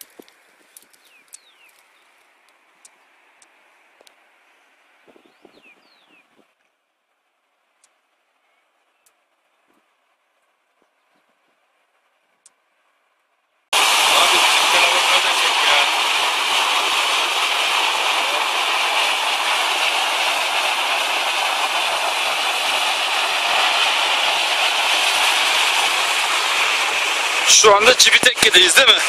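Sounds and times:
water rushing over boulders: 0:13.8 - 0:29.0.

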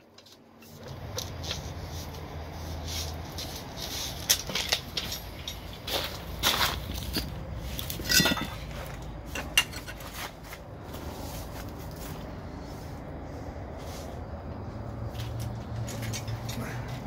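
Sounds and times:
metallic clink with ringing: 0:08.0 - 0:08.7.

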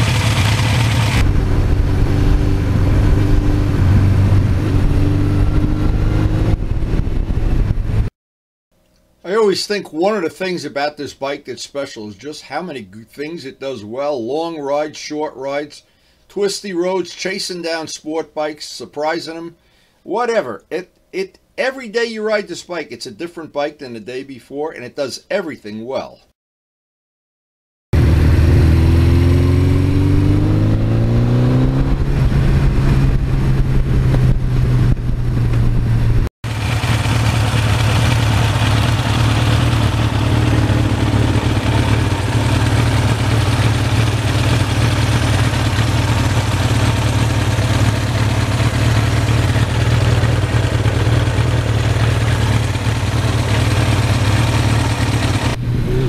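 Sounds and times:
motorcycle engine running: 0:00.0 - 0:08.1, 0:28.0 - 0:56.0.

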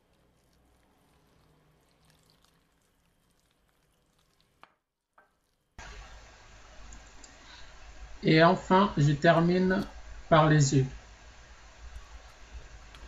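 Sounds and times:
steady low hiss: 0:05.8 - 0:13.0.

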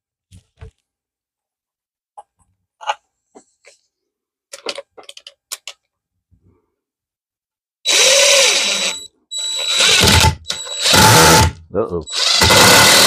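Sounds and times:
power drill driving screw into wood: 0:07.9 - 0:13.0.

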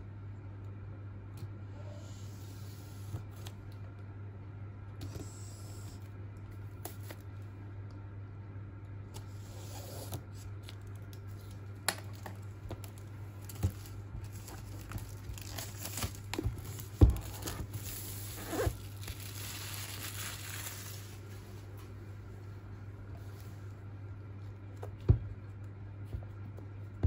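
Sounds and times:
steady low hum: 0:00.0 - 0:27.0
plastic film tearing and crinkling: 0:10.3 - 0:21.4.

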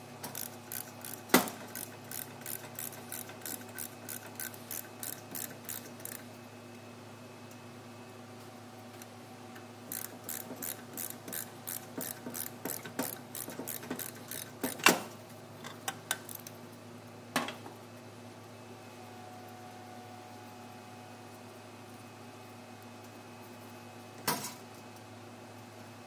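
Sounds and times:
ratchet wrench clicking: 0:00.3 - 0:06.2, 0:09.9 - 0:14.9, 0:16.1 - 0:16.5.

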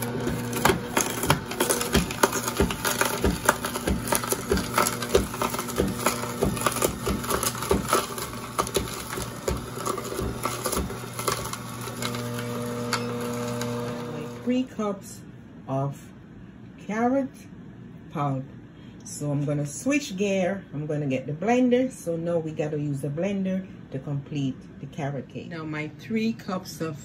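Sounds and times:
juicer motor humming: 0:00.0 - 0:15.0.

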